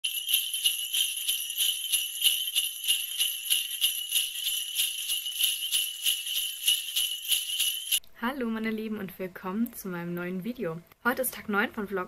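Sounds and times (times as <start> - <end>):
sleigh bells jingling: 0.0 - 8.0.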